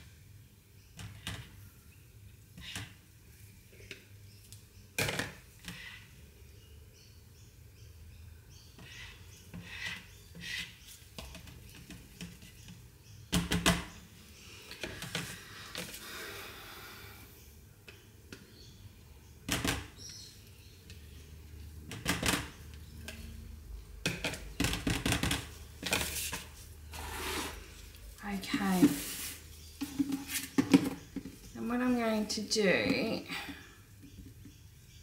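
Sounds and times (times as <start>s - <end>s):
scraping hiss: 26.1s - 27.9s
plastic knocks and taps on bench: 29.8s - 31.4s.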